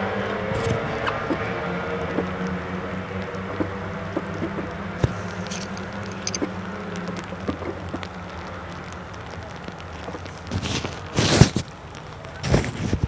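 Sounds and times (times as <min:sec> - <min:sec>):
distant race car engines: 0:00.0 - 0:13.0
light ticks: 0:02.0 - 0:12.4.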